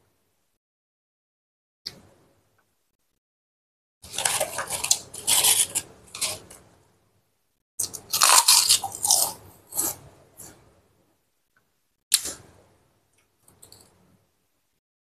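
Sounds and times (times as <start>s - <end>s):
crackers crunched while chewing: 4.0s - 6.6s, 7.8s - 10.0s.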